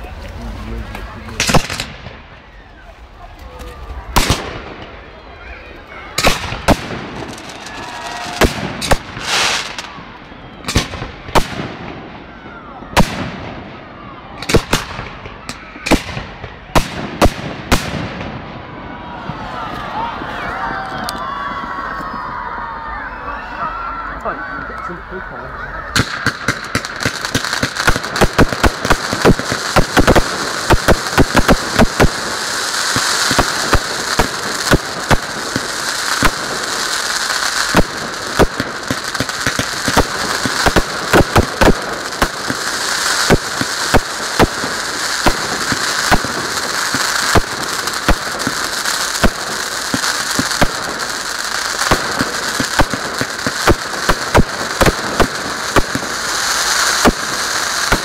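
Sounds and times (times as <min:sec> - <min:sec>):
crackling hiss: 0:00.0 - 0:12.0, 0:25.9 - 0:58.0
fireworks bangs and pops: 0:00.0 - 0:22.4, 0:25.9 - 0:58.0.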